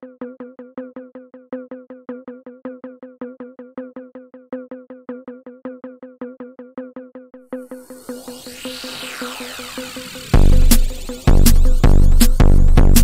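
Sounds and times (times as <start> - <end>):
fast synthesizer notes: 7.7 - 13.0
held low synth note: 7.7 - 13.0.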